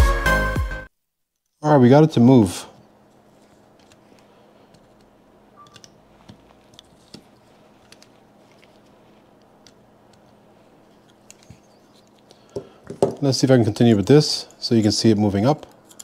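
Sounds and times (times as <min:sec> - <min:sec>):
faint steady hum: 0:00.3 - 0:16.0
pliers clicking and scraping: 0:15.6 - 0:16.0.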